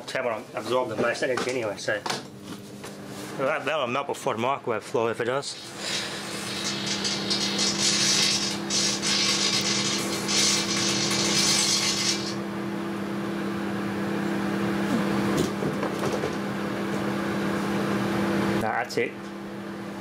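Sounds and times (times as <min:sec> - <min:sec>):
microwave oven humming: 0:00.0 - 0:20.0
electrical arcing crackle: 0:06.4 - 0:12.4.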